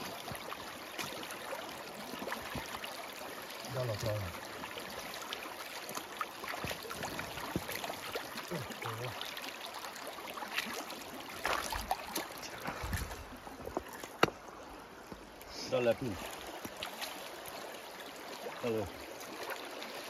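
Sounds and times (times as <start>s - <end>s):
creek running over rocks: 0.0s - 20.0s
splashes in water: 10.3s - 14.3s.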